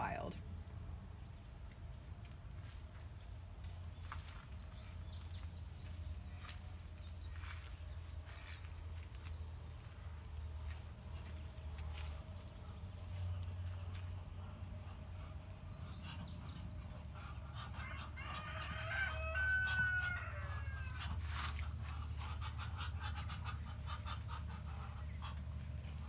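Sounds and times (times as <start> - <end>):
ducks calling raspily: 20.8 - 26.0.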